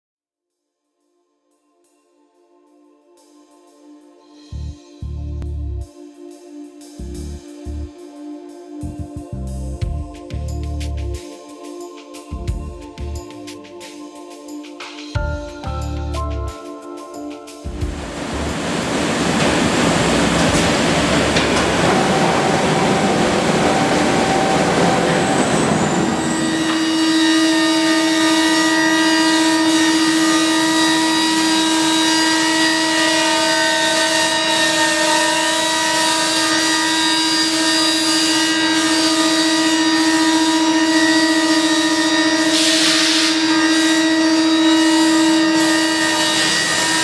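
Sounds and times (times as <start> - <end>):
machine steady whine: 17.7 - 47.0
woodworking machine rushing noise: 17.9 - 47.0.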